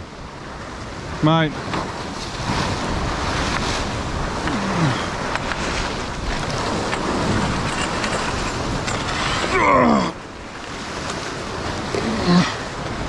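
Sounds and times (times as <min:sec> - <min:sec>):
ocean surf against rock: 0:00.0 - 0:13.0
wind on microphone: 0:00.0 - 0:13.0
man groaning: 0:04.5 - 0:05.1, 0:09.4 - 0:10.2, 0:11.9 - 0:12.6.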